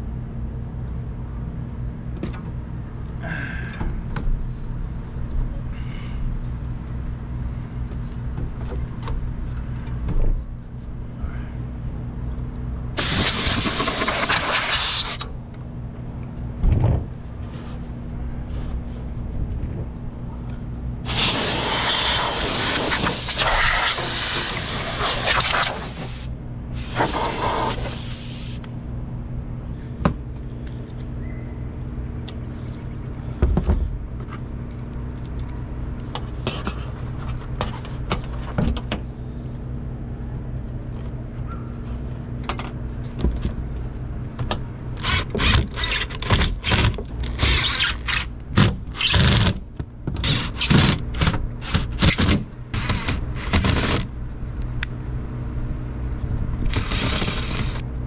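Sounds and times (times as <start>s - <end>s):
steady low hum: 0.0s - 58.0s
hissing spray from a nozzle: 13.0s - 15.2s, 21.1s - 28.6s.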